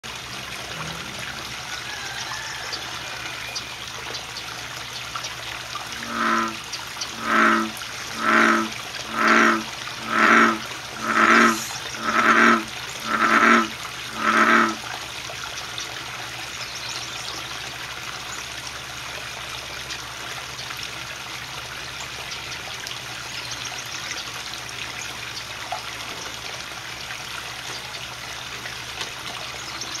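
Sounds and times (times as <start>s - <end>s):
water trickling: 0.0s - 30.0s
bullfrog croaking: 5.9s - 14.8s.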